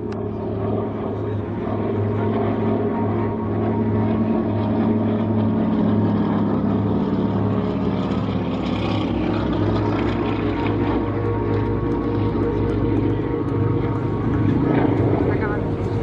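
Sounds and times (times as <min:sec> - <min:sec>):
propeller plane engine drone: 0:00.0 - 0:16.0.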